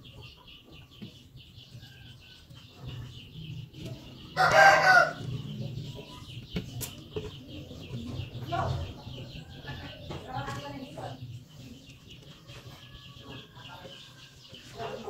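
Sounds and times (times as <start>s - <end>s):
rooster crowing: 4.4s - 5.2s.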